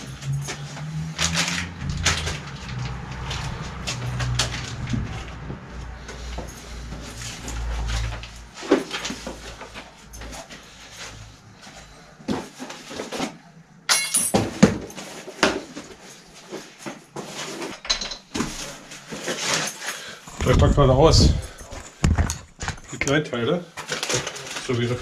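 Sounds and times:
packaging rustling: 0:00.0 - 0:11.2, 0:23.8 - 0:25.0
knocks and clinks of bicycle parts: 0:13.9 - 0:15.9, 0:16.8 - 0:18.8.

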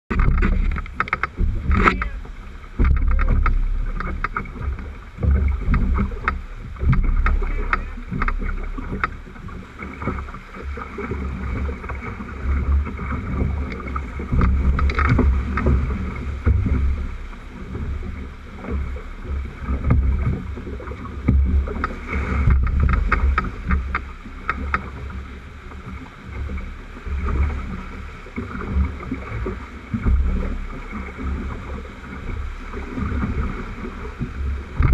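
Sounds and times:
low rumble: 0:00.1 - 0:34.9
water slapping on hull and oars: 0:00.1 - 0:34.9
white-water rapids splashing: 0:00.1 - 0:34.9.

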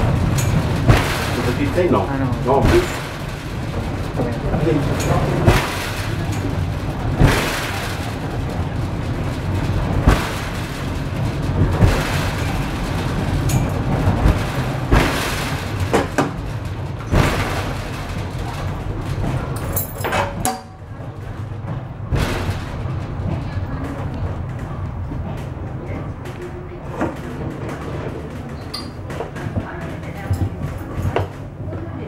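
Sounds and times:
knocks and thumps: 0:00.0 - 0:20.6
funicular car rumbling: 0:00.0 - 0:32.0.

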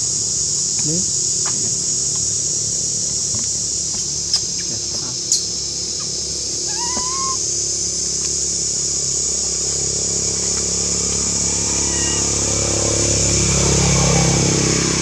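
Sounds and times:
high-pitched insect chorus: 0:00.0 - 0:15.0
animal's short rising call: 0:06.6 - 0:07.5, 0:11.4 - 0:13.2.

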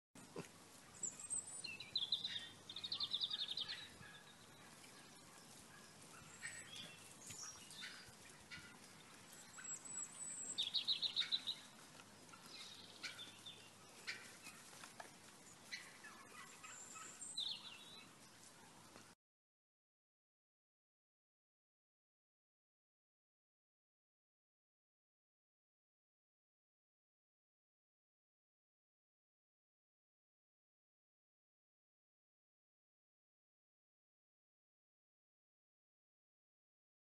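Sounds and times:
songbird trills: 0:00.3 - 0:14.7, 0:15.4 - 0:18.4.

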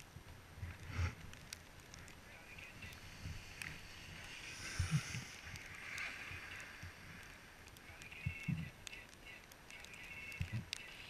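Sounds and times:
skis hissing over snow: 0:00.8 - 0:01.2, 0:02.4 - 0:07.5.

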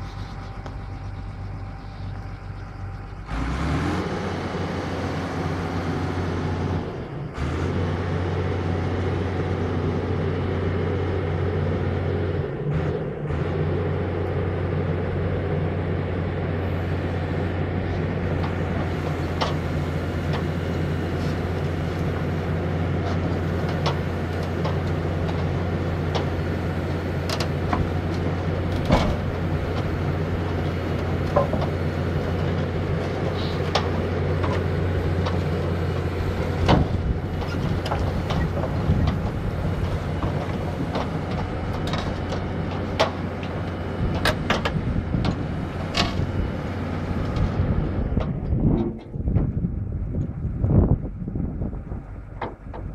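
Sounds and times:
diesel engine humming: 0:00.0 - 0:52.9
steel tracks clanking: 0:18.2 - 0:46.3.

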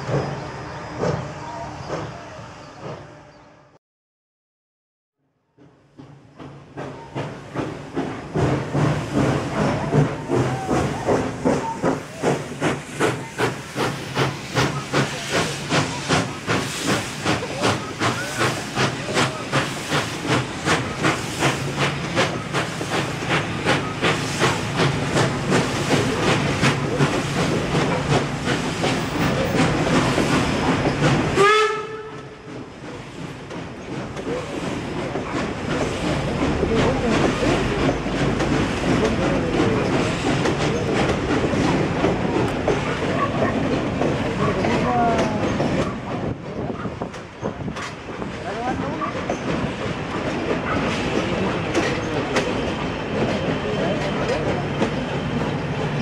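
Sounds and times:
steam locomotive chuffing: 0:00.0 - 0:03.3, 0:05.5 - 0:56.0
passenger coaches rolling past: 0:05.5 - 0:56.0
steam hissing: 0:06.1 - 0:56.0
steam whistle blast: 0:31.4 - 0:32.2.

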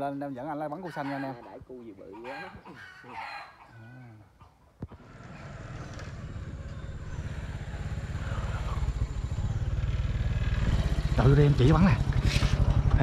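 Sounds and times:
motorbike engine running: 0:05.0 - 0:13.0.

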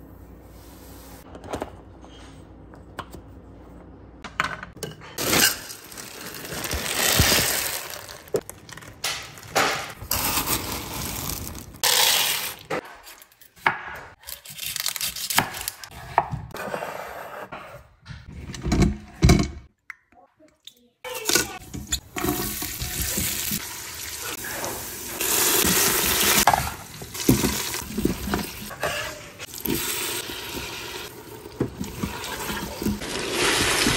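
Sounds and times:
frozen peas scattering on board: 0:05.2 - 0:12.6.

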